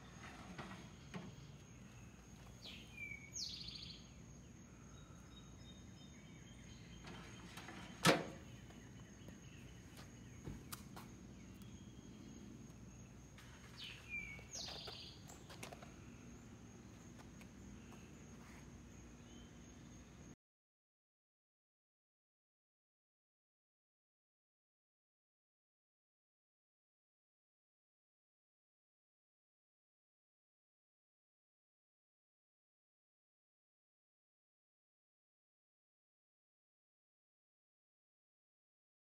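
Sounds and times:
bird chirping: 0:00.8 - 0:20.1.

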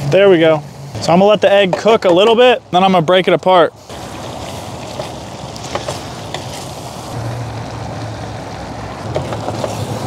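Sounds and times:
egg sizzling in pan: 0:03.8 - 0:10.0.

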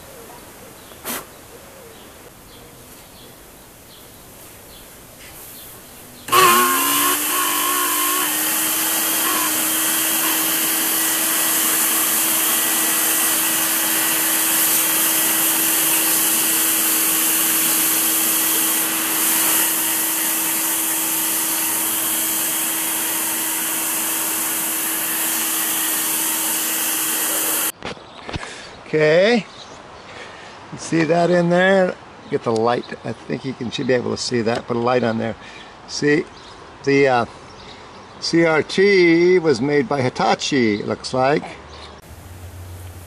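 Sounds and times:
shop vacuum motor running: 0:06.3 - 0:27.7
vacuum sucking dust: 0:06.3 - 0:27.7.

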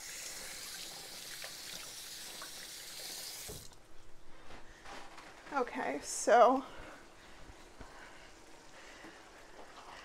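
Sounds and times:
kitchen tap running: 0:00.0 - 0:03.8.

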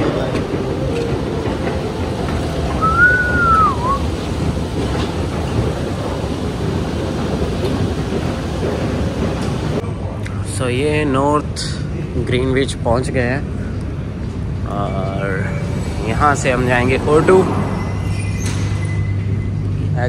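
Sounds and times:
train wheel squeal: 0:00.0 - 0:06.2, 0:14.8 - 0:20.0
train rumbling: 0:00.0 - 0:20.0.

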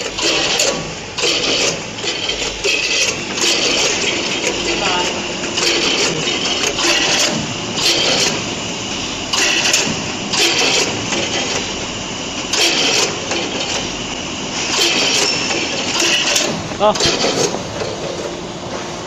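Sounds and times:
packing machine mechanical din: 0:00.0 - 0:19.0
rush of machine noise: 0:00.0 - 0:19.0.

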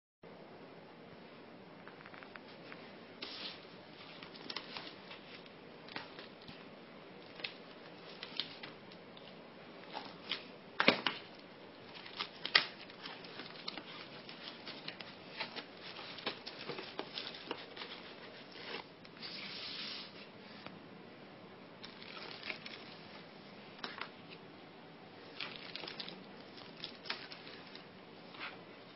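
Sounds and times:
plastic bag crinkling: 0:11.9 - 0:18.8, 0:21.8 - 0:23.0, 0:25.3 - 0:27.9.

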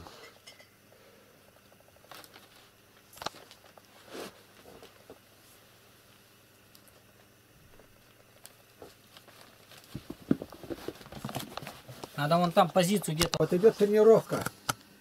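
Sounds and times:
kittens rustling and tapping: 0:07.7 - 0:13.4.

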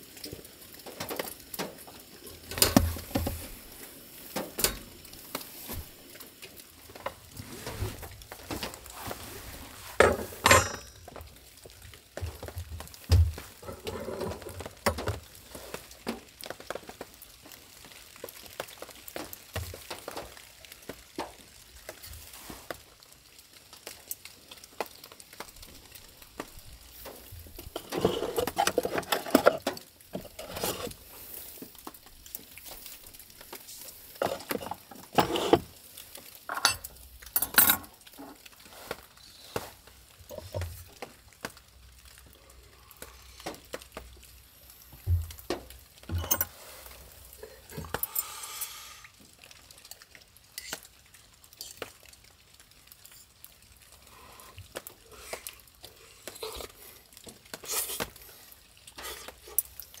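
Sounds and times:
cutlery and cookware clinking: 0:10.0 - 0:11.2, 0:27.8 - 0:30.9, 0:34.2 - 0:35.6, 0:36.5 - 0:38.4, 0:46.1 - 0:46.6.

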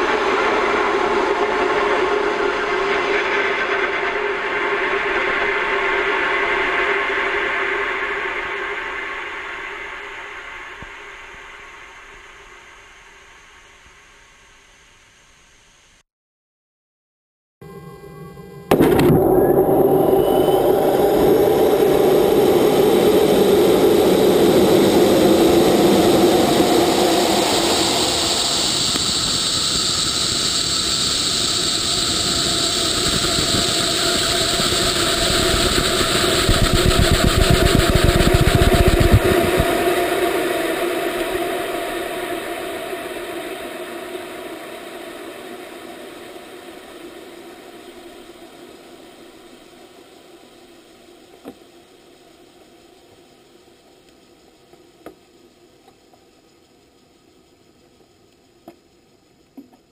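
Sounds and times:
rocket motor roaring: 0:18.7 - 0:49.1.

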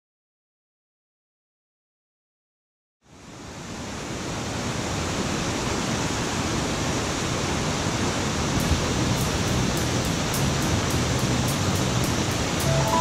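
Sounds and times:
falling water hiss: 0:03.4 - 0:13.0.

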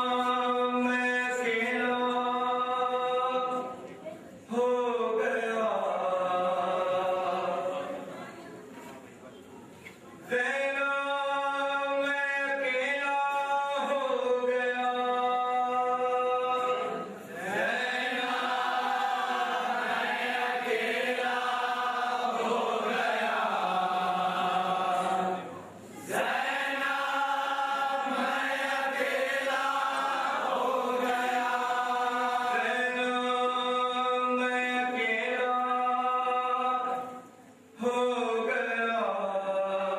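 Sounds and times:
person chanting a lament: 0:04.5 - 0:08.0.

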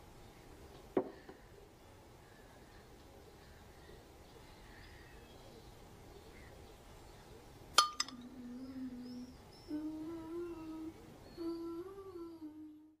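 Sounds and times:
person humming: 0:08.1 - 0:13.0.

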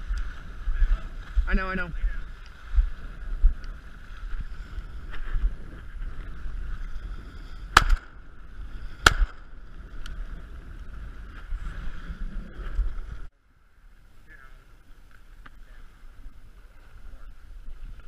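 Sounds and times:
wind: 0:00.0 - 0:18.0
shotgun shots: 0:07.8 - 0:08.2, 0:09.0 - 0:09.4.

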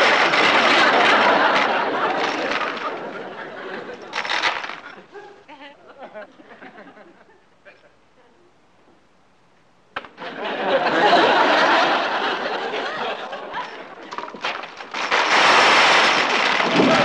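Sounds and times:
studio audience laughter: 0:00.4 - 0:04.2, 0:10.2 - 0:14.0.

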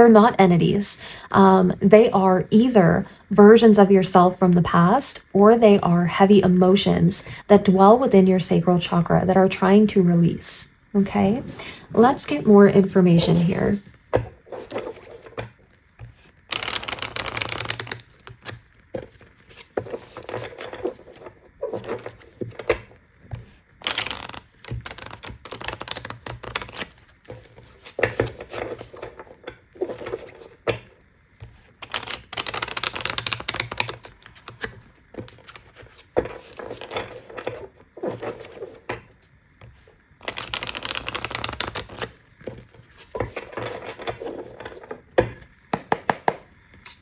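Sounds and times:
cards being shuffled: 0:13.2 - 0:45.0.

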